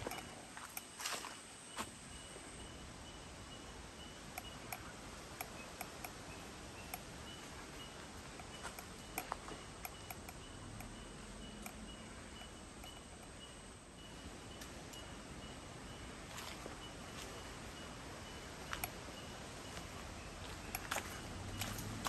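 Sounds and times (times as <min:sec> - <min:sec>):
background hiss: 0:00.0 - 0:22.0
faint high chirping: 0:00.0 - 0:22.0
light clicks: 0:08.4 - 0:13.3.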